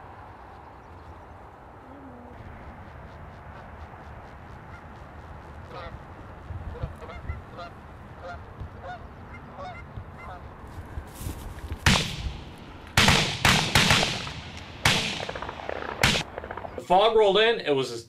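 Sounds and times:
geese honking: 2.6s - 10.6s
shotgun blasts: 11.8s - 16.8s.

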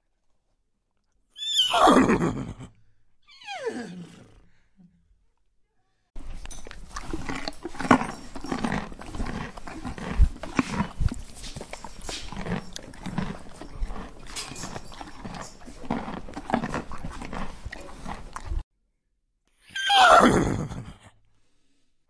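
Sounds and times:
horses making noises: 6.2s - 18.6s.

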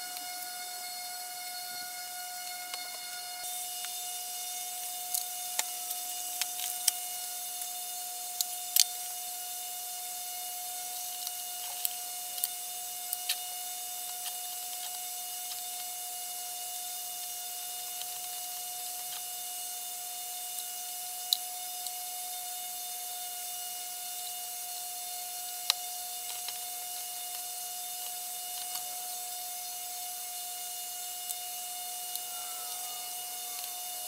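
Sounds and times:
faint steady hum: 0.0s - 34.0s
small metal parts clicking: 31.2s - 34.0s.

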